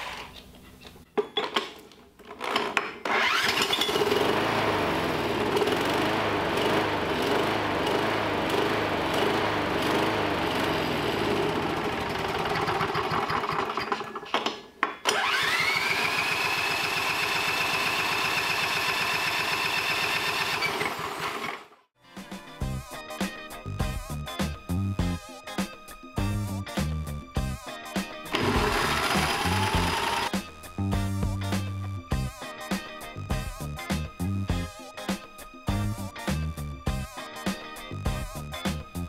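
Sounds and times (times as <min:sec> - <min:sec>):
small engine cranking over: 0:02.4 - 0:14.2, 0:15.1 - 0:21.8, 0:28.3 - 0:30.4
electric drill whining: 0:15.1 - 0:21.7, 0:28.3 - 0:30.3.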